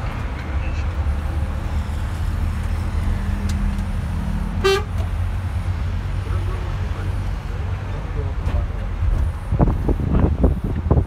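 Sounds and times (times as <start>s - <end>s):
vehicle horn toot: 4.6s - 5.0s.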